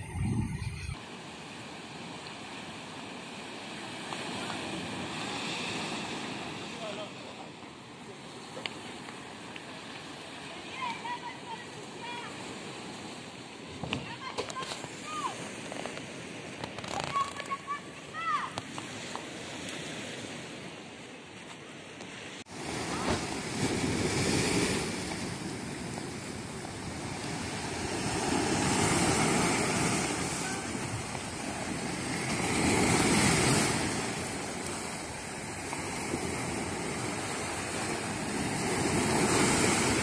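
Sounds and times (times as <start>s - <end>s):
surf breaking on beach: 0.0s - 7.5s, 22.4s - 40.0s.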